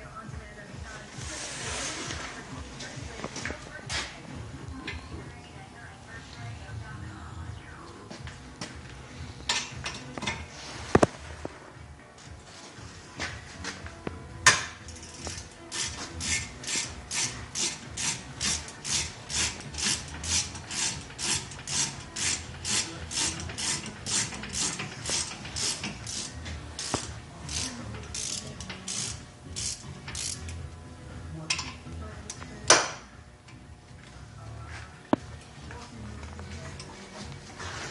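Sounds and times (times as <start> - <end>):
ratchet wrench clicking: 14.9 - 30.6.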